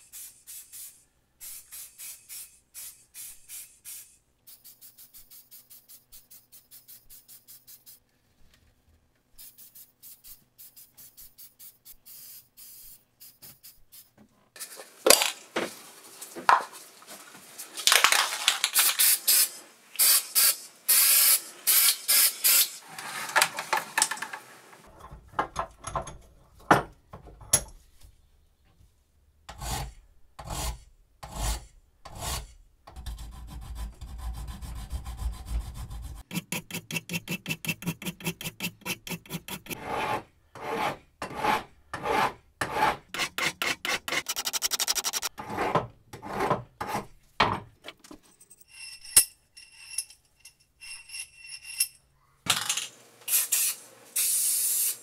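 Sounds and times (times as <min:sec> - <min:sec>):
hand file scraping metal: 0:29.5 - 0:47.1
abrasive blast cabinet hissing: 0:53.3 - 0:55.0.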